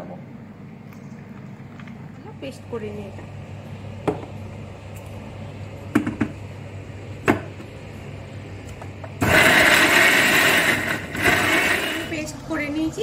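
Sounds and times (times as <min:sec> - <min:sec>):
mixer grinder motor whirring: 0:09.2 - 0:12.3.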